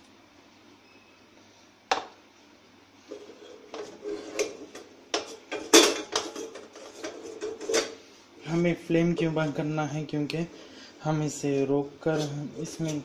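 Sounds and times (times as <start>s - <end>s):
wooden spatula scraping a pan: 3.1s - 7.9s.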